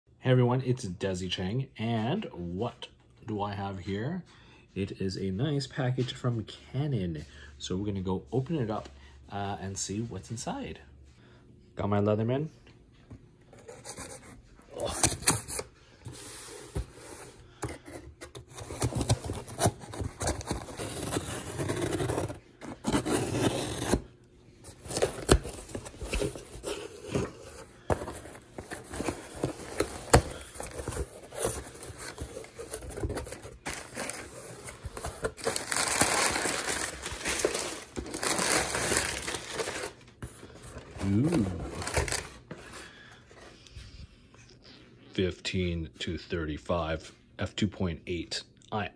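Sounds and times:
packing paper rustling: 0:13.6 - 0:43.5
cardboard flaps tearing open: 0:28.8 - 0:39.9.

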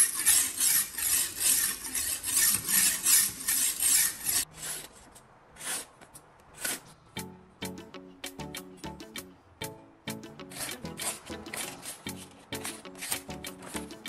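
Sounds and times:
sharpening stone rasping on knife: 0:00.0 - 0:04.9
blade slicing paper: 0:00.0 - 0:07.0.

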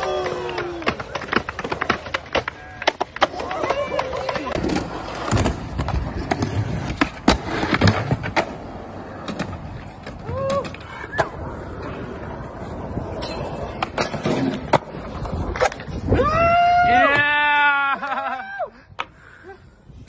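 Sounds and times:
skateboard clacking: 0:00.0 - 0:16.0
skateboard wheels rolling on concrete: 0:00.0 - 0:20.0.

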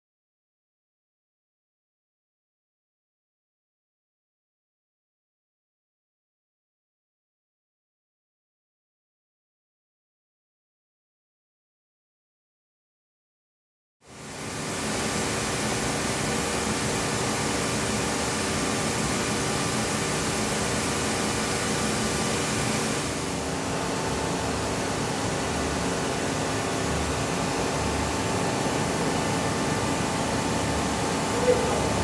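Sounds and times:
machining center hum and hiss: 0:14.1 - 0:32.0.

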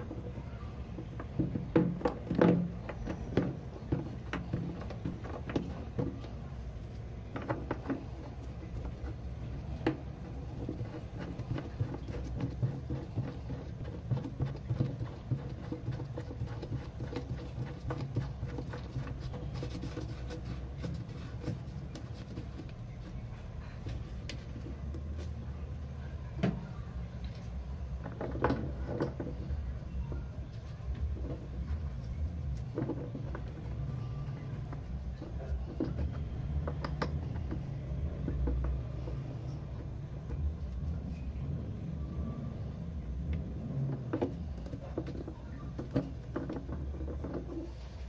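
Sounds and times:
plastic parts clicking and knocking: 0:00.0 - 0:06.4, 0:07.3 - 0:23.2, 0:27.9 - 0:29.6, 0:34.6 - 0:40.4, 0:43.3 - 0:47.7
low steady hum: 0:00.0 - 0:48.0.

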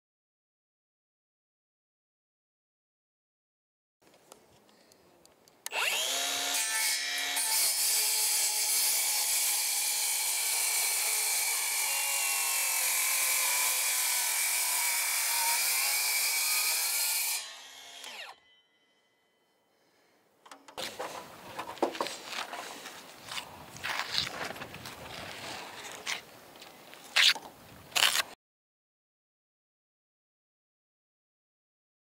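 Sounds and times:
angle grinder cutting post: 0:05.7 - 0:18.7.

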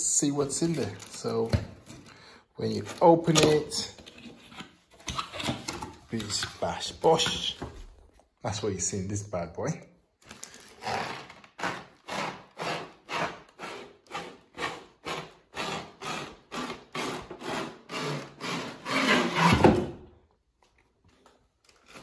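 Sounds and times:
plastic scraping inside cardboard box: 0:10.5 - 0:12.4.

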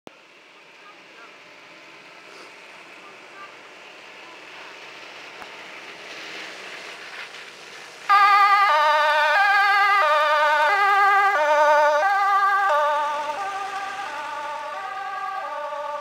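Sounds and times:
fire engine engine and tyres: 0:00.1 - 0:16.0
two-tone siren: 0:08.1 - 0:16.0.

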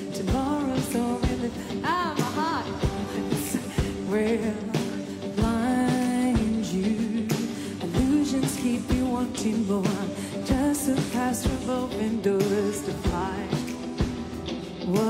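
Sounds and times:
band playing: 0:00.0 - 0:06.8
steady drum beat: 0:00.0 - 0:15.0
woman singing: 0:00.0 - 0:15.0.

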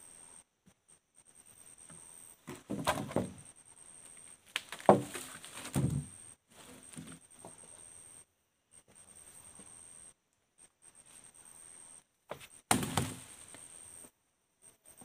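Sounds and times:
wood scraping and knocking: 0:02.5 - 0:03.4, 0:04.6 - 0:07.6
wood thud: 0:02.5 - 0:03.4, 0:04.8 - 0:06.1, 0:12.7 - 0:13.3.

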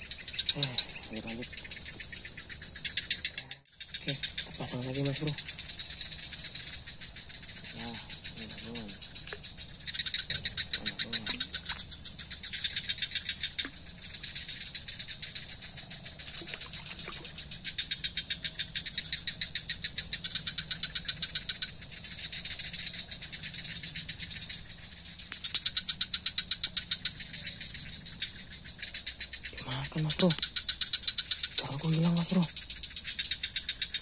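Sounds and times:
insects droning: 0:00.0 - 0:34.0.

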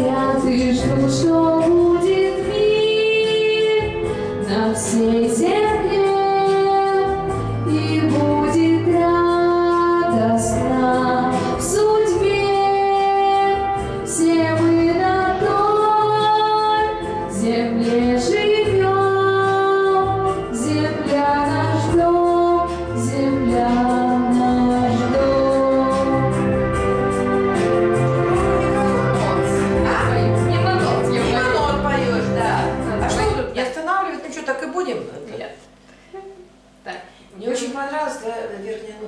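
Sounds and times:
woman singing pop song: 0:00.0 - 0:26.6
backing track with bass line: 0:03.8 - 0:33.6.

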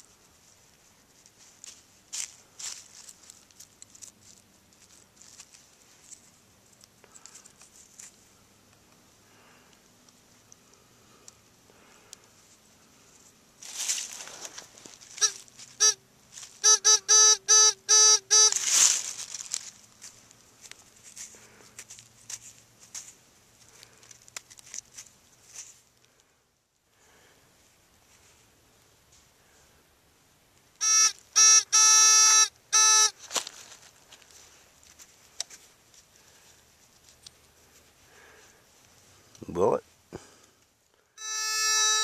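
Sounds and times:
hands rustling in dirt and leaves: 0:00.0 - 0:16.6, 0:18.5 - 0:26.3, 0:33.1 - 0:40.8
metal detector pinpointer beeping: 0:15.2 - 0:16.0, 0:16.6 - 0:18.7, 0:30.8 - 0:33.2, 0:41.2 - 0:42.0.

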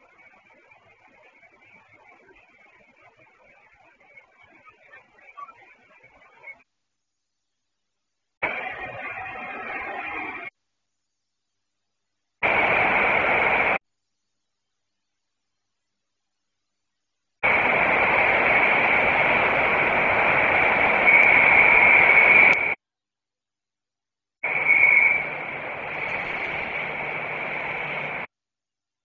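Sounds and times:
radio static hissing: 0:00.0 - 0:06.7, 0:08.4 - 0:10.5, 0:12.4 - 0:13.8, 0:17.4 - 0:22.8, 0:24.4 - 0:28.3.

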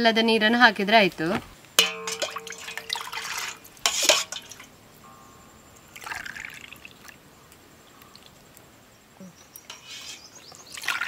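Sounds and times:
liquid trickling into mould: 0:01.8 - 0:04.8, 0:05.7 - 0:08.6, 0:09.6 - 0:11.0.

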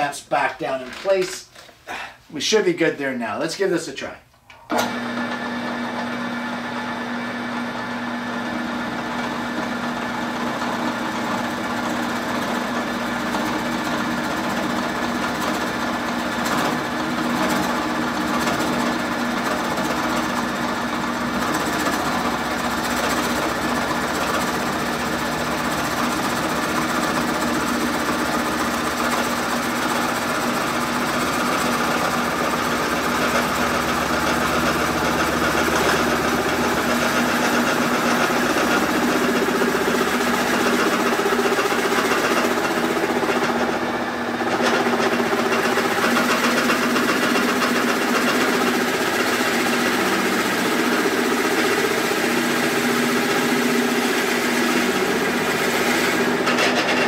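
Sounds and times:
drill press motor hum: 0:04.5 - 0:57.0
drill bit cutting wood: 0:04.7 - 0:57.0.

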